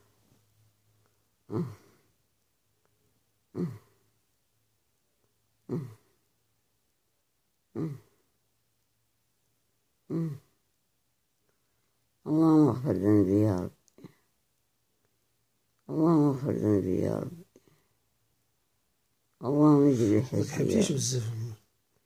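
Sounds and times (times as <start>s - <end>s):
faint low hum: 0.0s - 22.0s
elderly woman moaning: 1.5s - 2.0s, 3.6s - 3.9s, 5.7s - 6.0s, 7.8s - 8.1s, 10.1s - 10.5s.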